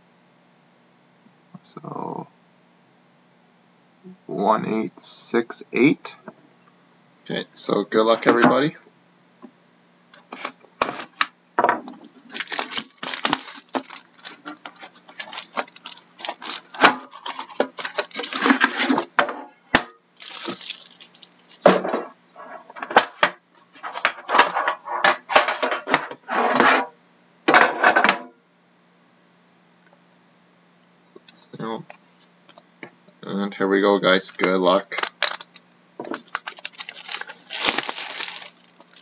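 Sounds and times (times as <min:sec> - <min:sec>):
plastic wrap crinkling and tearing: 0:12.2 - 0:19.1, 0:20.2 - 0:21.8, 0:34.2 - 0:39.0.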